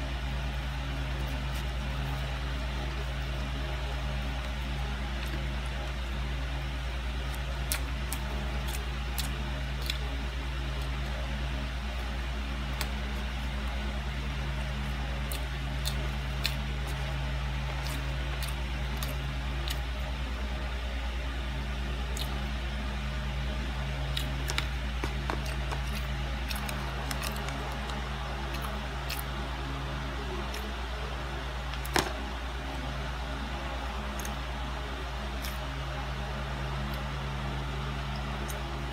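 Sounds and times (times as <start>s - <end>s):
low machine hum: 0.0s - 38.9s.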